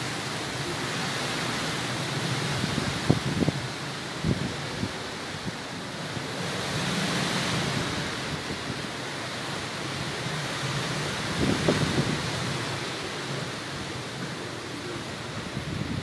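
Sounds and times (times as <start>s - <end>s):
heavy rain: 0.0s - 16.0s
hurricane wind: 0.0s - 16.0s
wind buffeting microphone: 2.4s - 5.7s, 10.2s - 14.2s, 15.1s - 16.0s.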